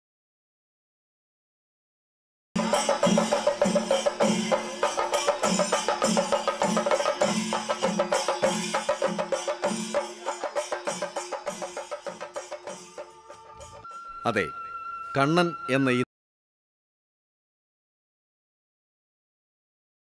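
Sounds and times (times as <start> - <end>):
crisp drum strokes and cymbals: 2.6 - 14.2
held tone: 10.2 - 16.1.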